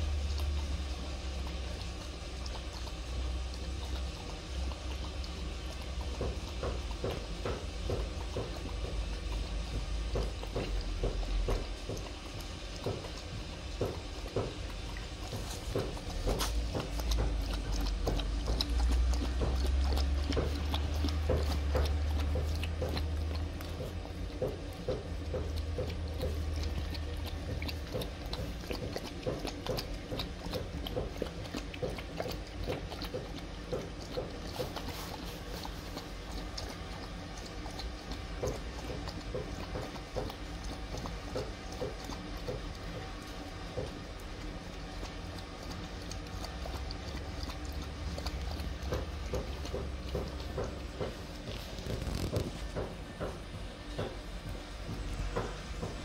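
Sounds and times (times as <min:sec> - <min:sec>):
dog lapping milk: 0:00.0 - 0:56.0.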